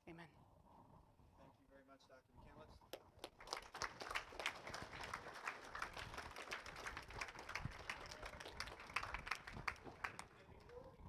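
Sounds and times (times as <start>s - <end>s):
audience clapping: 2.9s - 11.0s.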